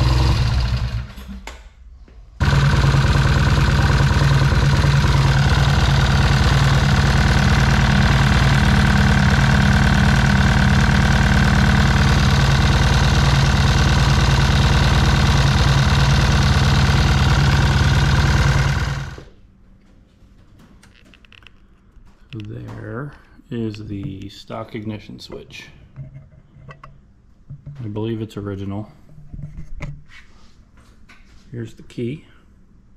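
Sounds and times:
motorcycle engine idling: 0:00.0 - 0:01.1, 0:02.4 - 0:19.3.

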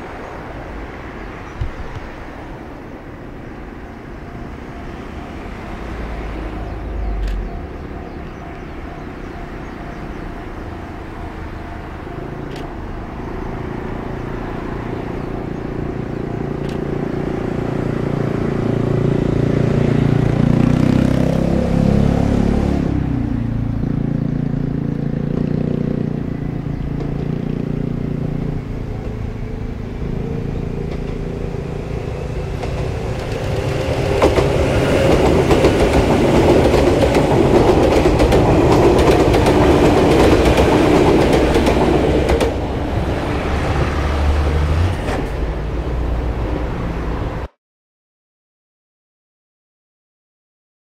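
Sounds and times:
train motor hum: 0:25.3 - 0:47.2
wheel clatter over rails: 0:30.6 - 0:43.9.

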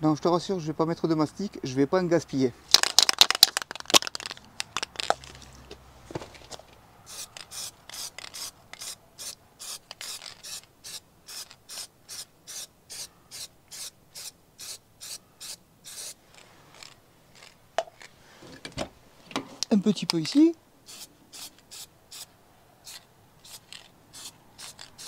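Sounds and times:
aerosol spray can puffs: 0:07.1 - 0:18.1, 0:20.2 - 0:22.3, 0:22.9 - 0:25.0.

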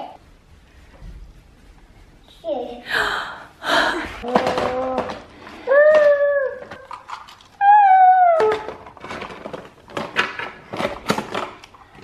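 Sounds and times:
plastic toys clicking and knocking: 0:04.2 - 0:12.0.

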